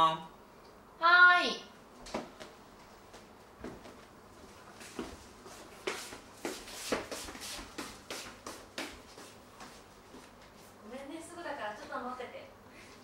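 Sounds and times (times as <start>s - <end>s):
footsteps on hard floor: 2.0s - 10.8s.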